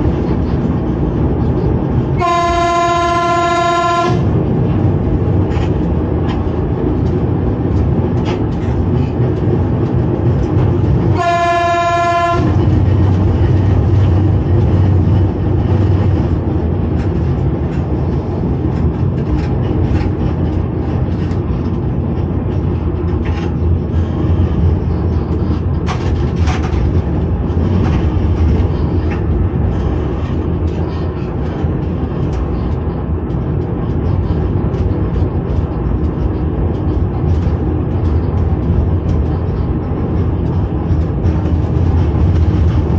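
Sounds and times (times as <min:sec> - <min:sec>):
train running rumble: 0:00.0 - 0:42.9
train whistle blast: 0:02.2 - 0:04.2
clicks over rail joints: 0:12.4 - 0:24.1.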